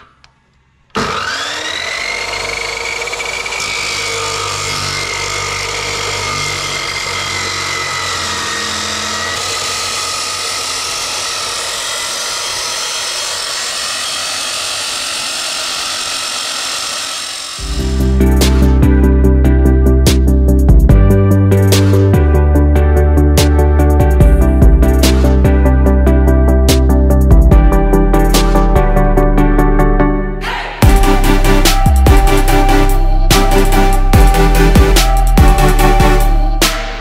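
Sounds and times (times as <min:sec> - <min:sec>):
chop saw cutting steel: 0:00.9 - 0:18.8.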